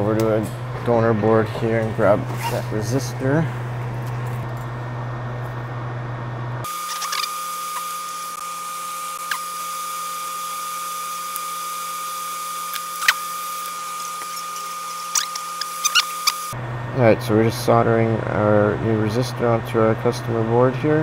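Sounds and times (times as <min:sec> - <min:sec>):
low hum: 0:00.0 - 0:21.0
electric blower whining: 0:06.6 - 0:16.6.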